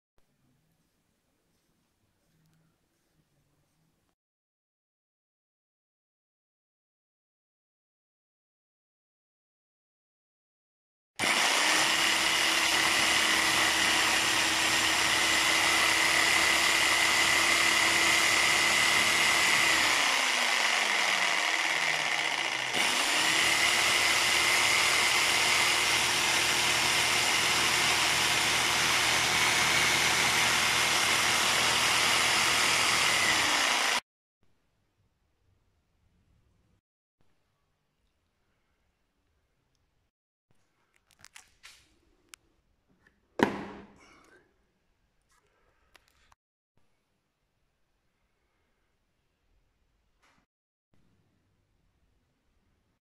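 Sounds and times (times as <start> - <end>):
reciprocating saw motor whine: 18.0 - 34.0.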